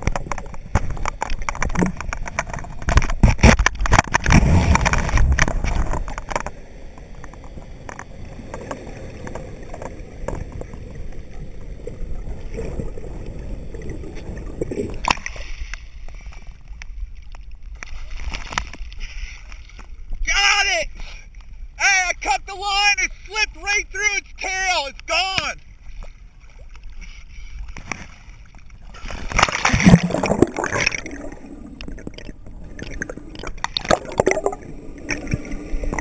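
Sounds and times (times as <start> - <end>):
underwater clicks: 0.0 - 11.2, 14.4 - 15.8, 27.6 - 36.0
muffled underwater rushing: 0.0 - 16.7, 25.7 - 36.0.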